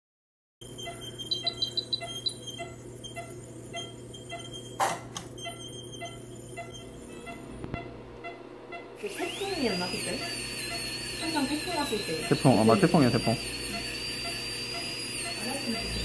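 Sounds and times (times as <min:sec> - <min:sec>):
equipment hum: 0:00.6 - 0:16.0
monitor beeping: 0:00.6 - 0:16.0.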